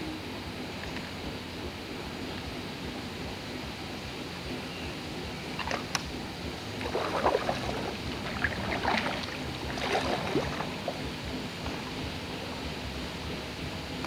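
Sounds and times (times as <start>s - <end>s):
kayak paddle splashing: 5.5s - 12.0s
water dripping: 6.7s - 11.0s.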